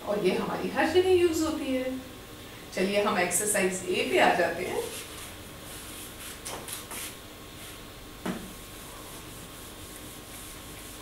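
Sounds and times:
duster wiping a whiteboard: 4.6s - 11.0s.

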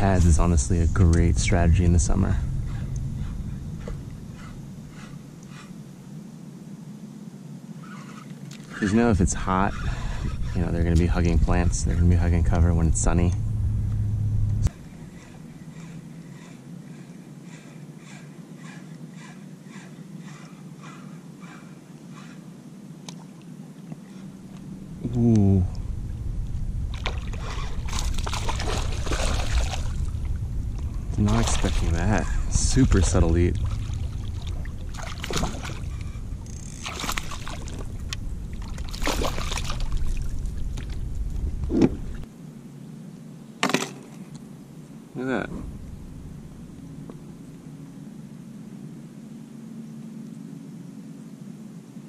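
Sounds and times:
steady low rumble: 0.0s - 7.7s, 8.8s - 17.4s, 23.7s - 43.0s, 44.4s - 52.0s
steady low hum: 0.0s - 52.0s
fish splashing in water: 27.0s - 30.2s, 33.1s - 36.1s, 36.8s - 41.0s
fishing reel ticking: 35.9s - 38.2s.

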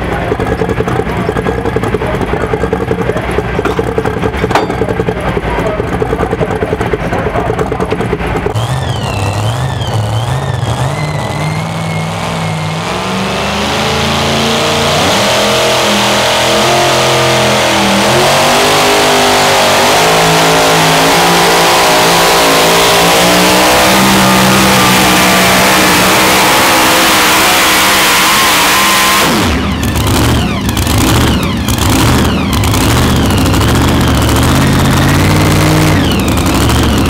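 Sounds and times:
engine with warbling whistle: 0.0s - 37.0s
supercharged engine revving: 0.0s - 37.0s.

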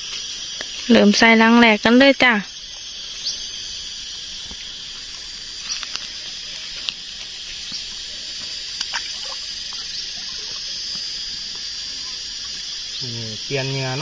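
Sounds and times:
insect chorus: 0.0s - 14.0s
trap clicking and rustling in grass: 5.6s - 7.4s.

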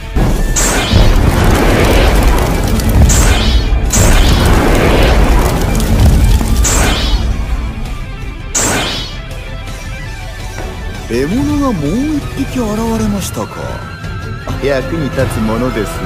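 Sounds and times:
fireball rumble and booming: 0.0s - 8.6s
background music: 0.0s - 16.0s.

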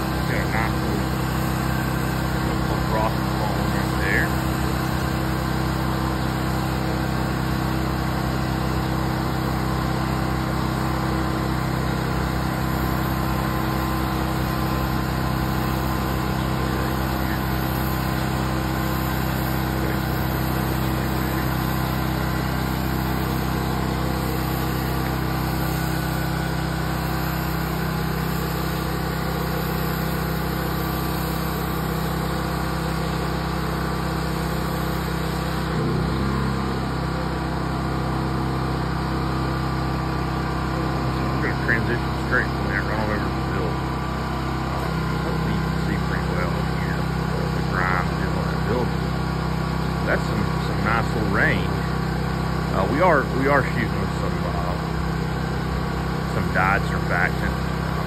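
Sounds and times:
pressure washer engine running: 0.0s - 58.0s.

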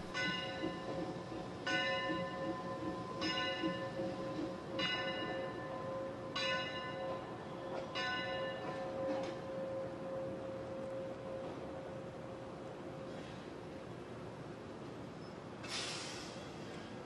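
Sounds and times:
locomotive bell ringing: 0.0s - 12.2s.

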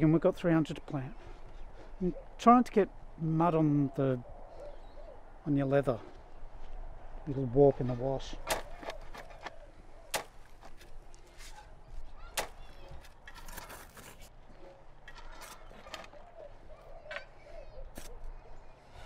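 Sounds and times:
birds chirping: 0.0s - 13.4s, 14.3s - 19.0s
spades digging into mulch: 8.4s - 11.7s, 12.3s - 14.4s, 15.0s - 16.2s.

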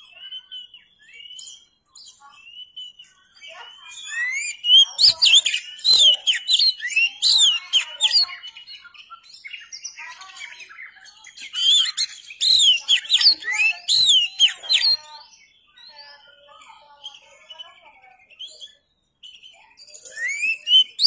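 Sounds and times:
bird singing sweeping notes: 0.0s - 10.0s, 10.6s - 16.4s, 18.2s - 21.0s.

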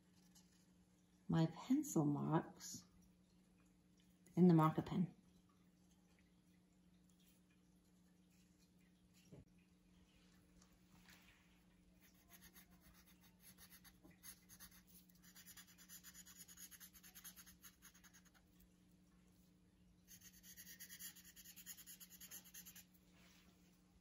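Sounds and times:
felt-tip marker scratching paper: 12.1s - 18.4s, 20.1s - 22.8s.

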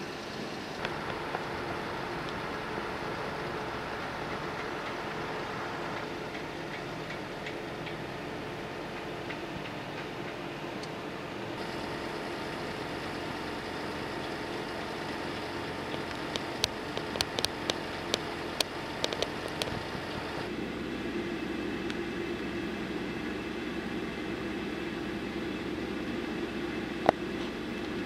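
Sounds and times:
low hum: 0.0s - 28.0s
machinery and traffic drone: 0.0s - 28.0s.

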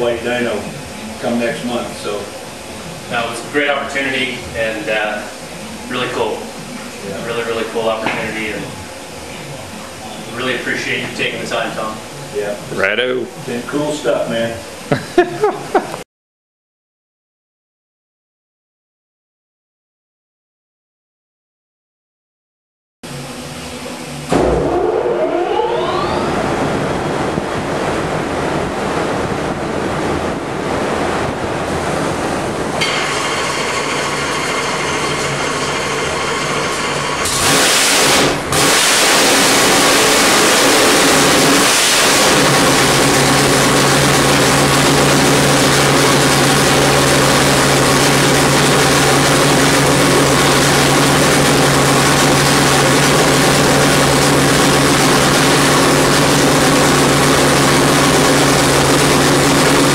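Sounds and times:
race car engine revving: 36.6s - 59.9s.

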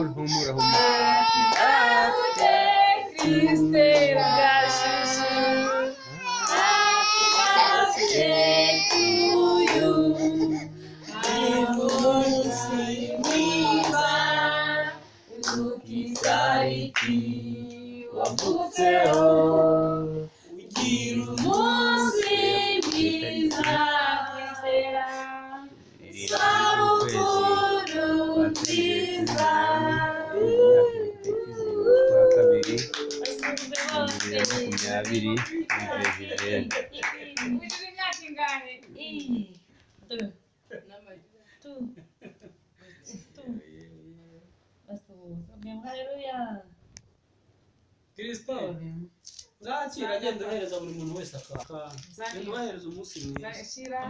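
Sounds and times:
people singing together: 0.0s - 37.2s
hands clapping along: 8.8s - 9.8s, 20.8s - 23.9s, 26.2s - 27.3s, 28.6s - 29.6s, 32.3s - 38.6s.

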